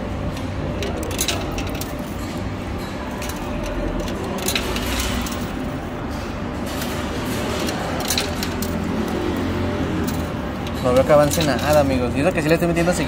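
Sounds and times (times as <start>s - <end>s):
coins clinking: 0.1s - 13.0s.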